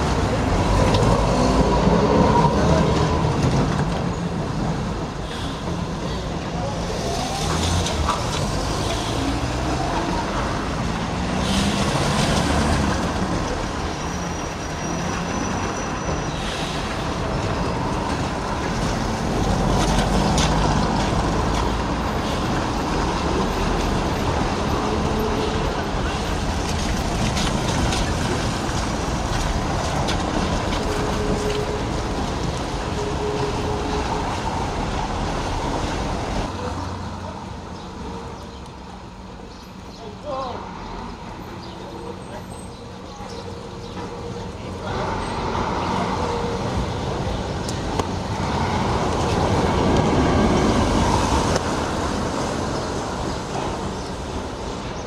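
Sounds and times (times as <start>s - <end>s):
tram wheels rumbling on rails: 0.0s - 39.5s, 40.5s - 55.0s
car traffic on wet street: 0.0s - 55.0s
tram wheel squeal: 12.8s - 18.4s, 30.7s - 35.9s.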